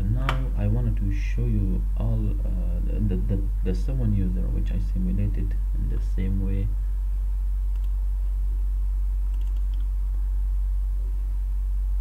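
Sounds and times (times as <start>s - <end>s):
steady low hum: 0.0s - 12.0s
computer mouse clicks: 7.7s - 8.0s, 9.3s - 9.9s.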